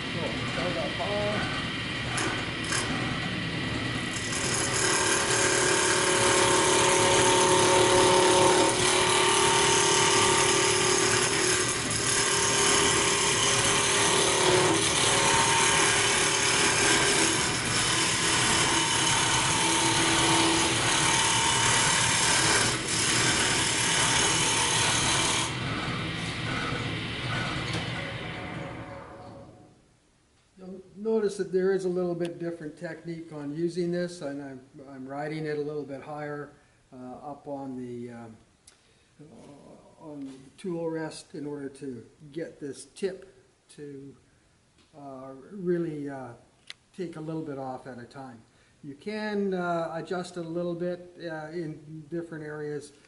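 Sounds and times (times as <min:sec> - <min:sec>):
lathe humming: 0:00.0 - 0:29.4
gouge scraping spinning wood: 0:01.4 - 0:28.7.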